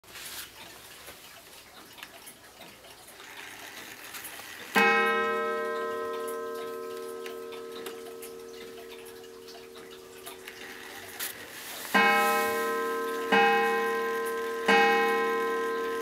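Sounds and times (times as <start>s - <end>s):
clock ticking: 0.6s - 16.0s
clock hands clicking: 1.4s - 16.0s
clock striking: 3.2s - 16.0s.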